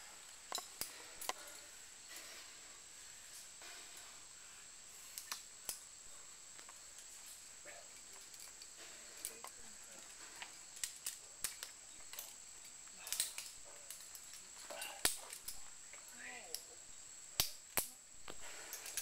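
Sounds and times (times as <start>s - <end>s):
carabiners clinking: 6.6s - 16.7s, 18.4s - 19.0s.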